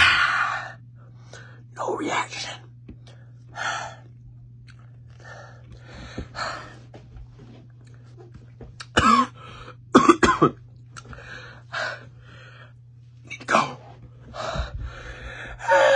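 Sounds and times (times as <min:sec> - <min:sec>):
young man coughing: 0:08.8 - 0:10.6.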